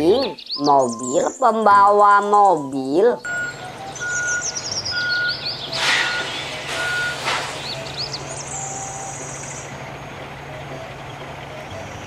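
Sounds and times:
birds chirping faintly: 0:00.0 - 0:12.0
truck reversing alarm beeps: 0:00.6 - 0:01.4, 0:02.6 - 0:12.0
truck engine running: 0:03.3 - 0:12.0
air hiss bursts: 0:05.7 - 0:08.2.

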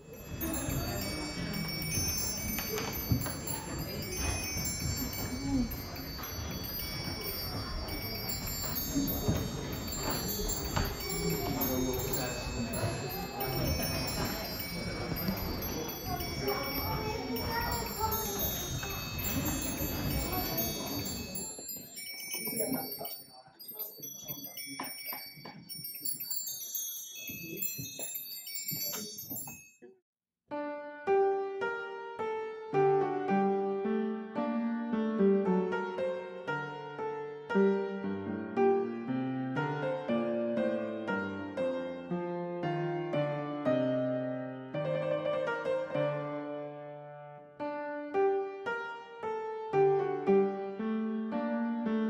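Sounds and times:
soft piano music: 0:00.0 - 0:24.2, 0:30.5 - 0:52.0
clock chiming tune: 0:00.0 - 0:29.8.

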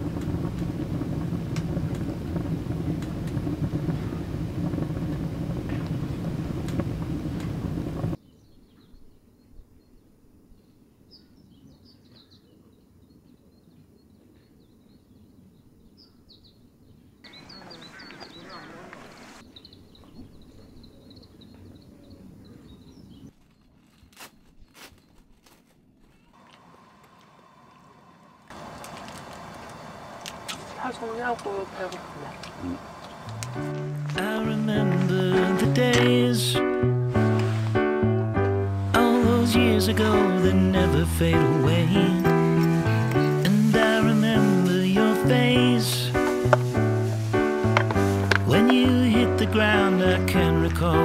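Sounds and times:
fire crackles and pops: 0:00.0 - 0:08.2, 0:28.4 - 0:51.0
low outdoor rumble: 0:00.0 - 0:08.2, 0:26.1 - 0:51.0
wood fire rushing: 0:00.0 - 0:08.2, 0:26.4 - 0:51.0
small birds chirping: 0:08.2 - 0:23.8, 0:28.6 - 0:36.6.

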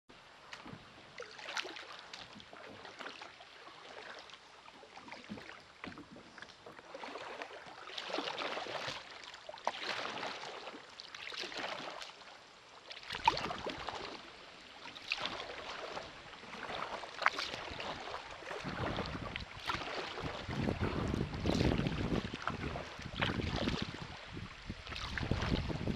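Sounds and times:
kayak paddle splashing water: 0:00.2 - 0:25.9
wind rumble on microphone: 0:17.5 - 0:25.9.

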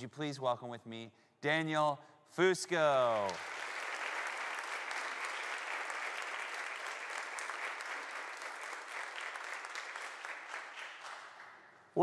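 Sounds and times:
congregation applauding: 0:02.8 - 0:12.0.

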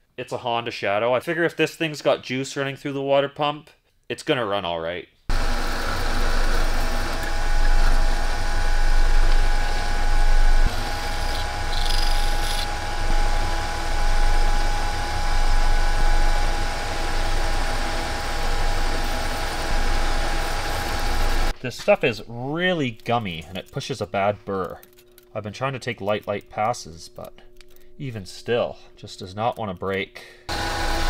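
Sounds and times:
lathe drill cutting metal: 0:05.3 - 0:21.5, 0:30.5 - 0:31.0
motor hum: 0:05.3 - 0:21.6
high-pitched cutting hiss: 0:09.0 - 0:13.5.

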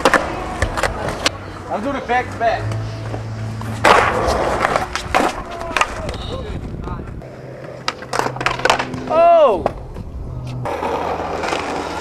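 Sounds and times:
skateboard deck clacking: 0:00.0 - 0:01.3, 0:03.8 - 0:06.4, 0:07.3 - 0:12.0
skateboard wheels rolling: 0:00.0 - 0:12.0.

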